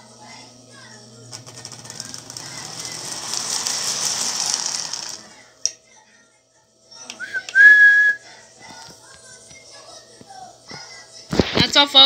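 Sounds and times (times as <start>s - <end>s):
toy train rattling whir: 0.8s - 5.8s.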